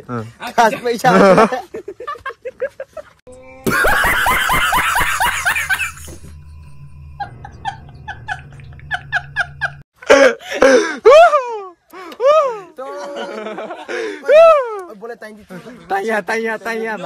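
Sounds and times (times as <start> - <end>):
man laughing hard: 1.0 - 6.1, 7.2 - 14.4
low steady hum: 5.2 - 9.8.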